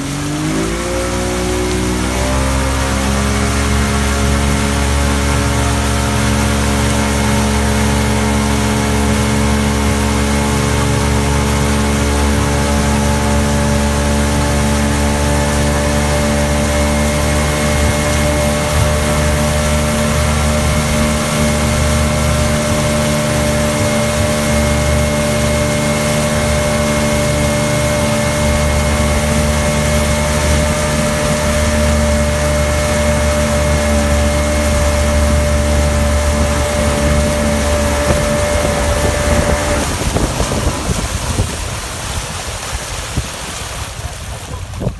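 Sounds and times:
motorboat engine running: 0.0 - 44.9
rushing wake water: 0.0 - 44.9
wind on microphone: 0.8 - 44.9.

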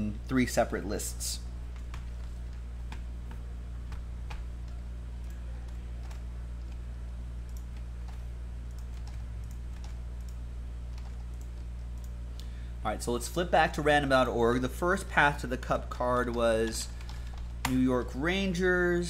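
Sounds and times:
steady low hum: 0.0 - 19.0
computer keyboard clicks: 7.4 - 12.2.

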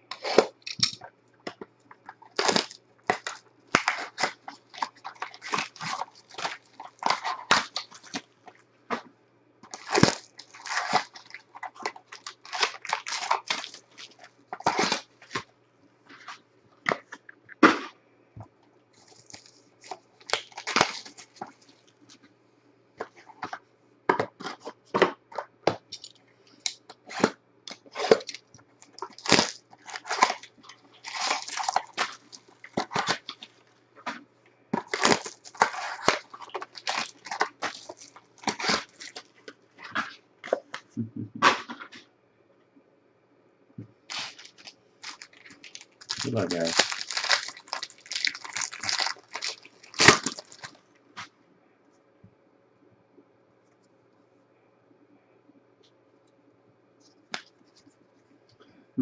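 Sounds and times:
foil and plastic crinkling: 0.0 - 9.0, 9.6 - 15.5, 19.0 - 22.2, 24.4 - 34.2, 34.8 - 40.7, 44.1 - 50.8
faint low hum: 0.0 - 59.0.

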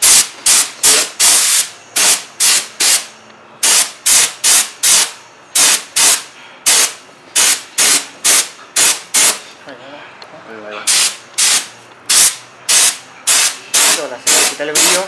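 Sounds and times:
spray gun hissing bursts: 0.0 - 9.4, 10.9 - 15.0.

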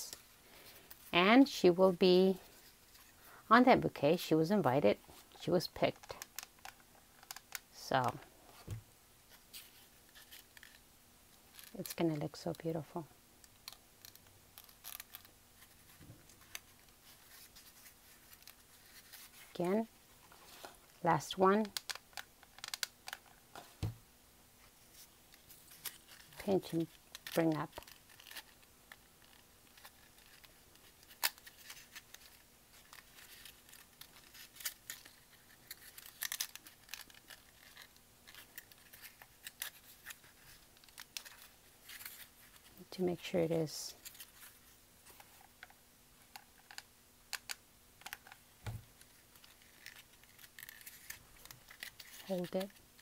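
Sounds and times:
paper rustling and crinkling: 24.6 - 42.8, 48.0 - 53.0.

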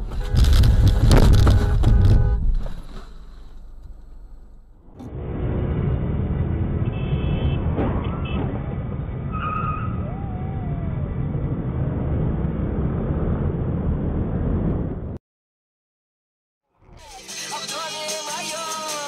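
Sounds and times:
road traffic rumble: 0.0 - 15.2.

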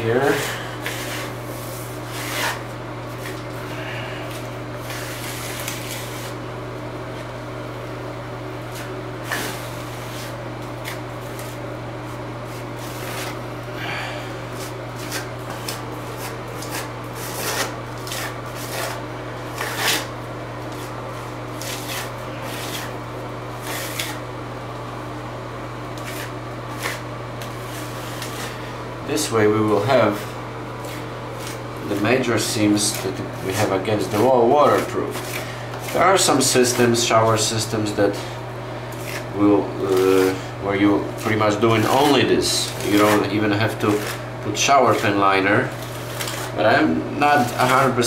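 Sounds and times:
steady low hum: 0.0 - 48.0
brush rubbing and scraping: 0.1 - 3.4, 4.2 - 6.4, 8.7 - 13.4, 14.5 - 20.1, 20.7 - 23.0, 26.0 - 37.6, 39.0 - 40.4.

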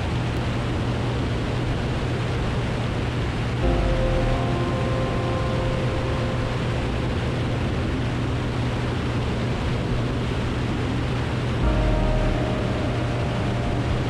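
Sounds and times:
high steady tones: 3.6 - 8.9, 11.6 - 14.0.

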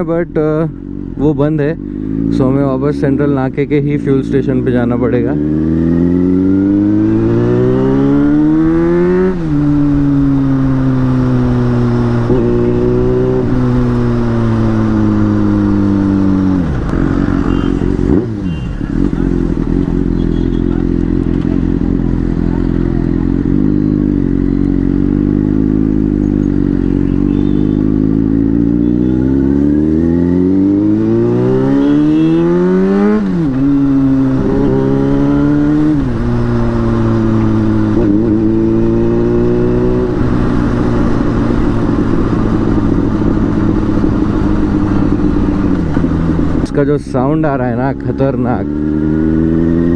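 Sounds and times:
motorcycle engine revving: 0.0 - 49.9.

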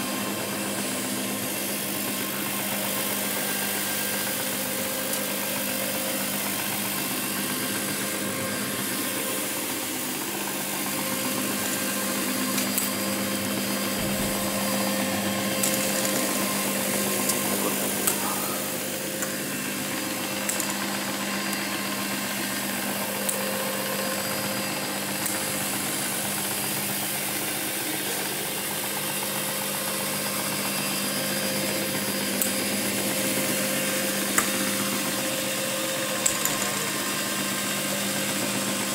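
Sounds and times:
carpet cleaning machine humming: 0.0 - 38.9.

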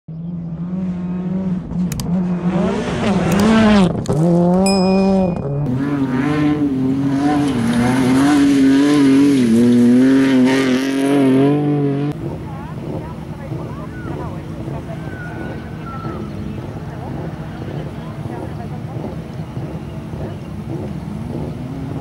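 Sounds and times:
rally car engine revving: 0.1 - 22.0.

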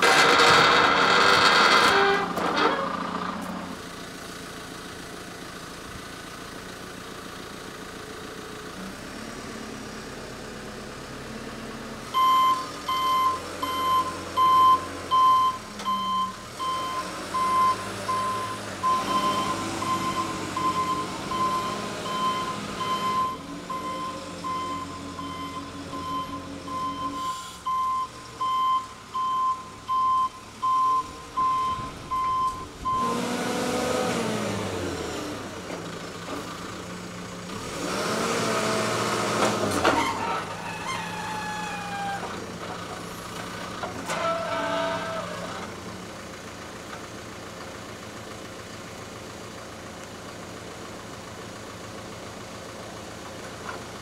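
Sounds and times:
diesel engine running: 0.0 - 54.0
reversing alarm beeping: 12.2 - 33.2.

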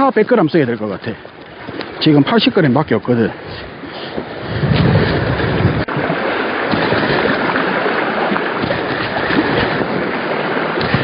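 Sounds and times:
sea waves against rocks: 0.0 - 11.0.

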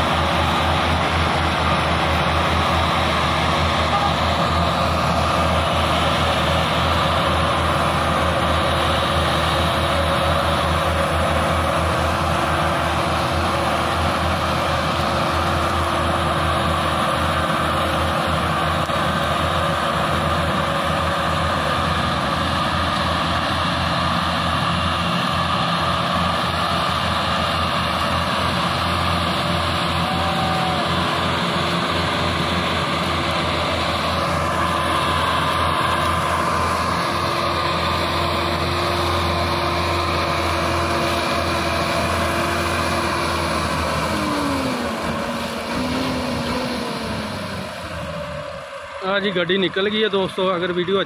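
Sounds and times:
diesel tractor engines under load: 0.0 - 51.0.

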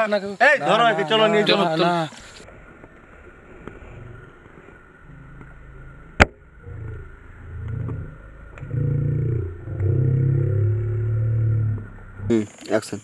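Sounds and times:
low droning rumble: 2.3 - 12.4.

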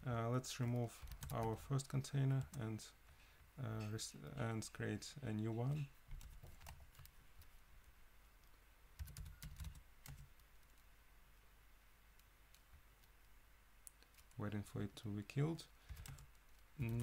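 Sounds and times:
keyboard keystrokes: 9.0 - 10.8.

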